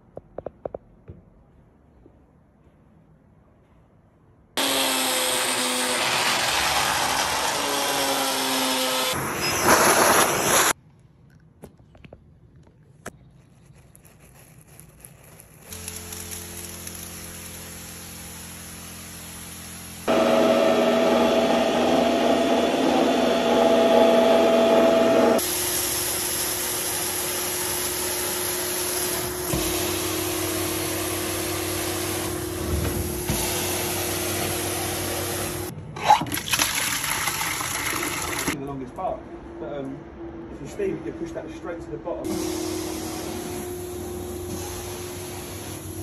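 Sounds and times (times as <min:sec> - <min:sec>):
carpet cleaner motor whine: 0:20.1 - 0:35.7.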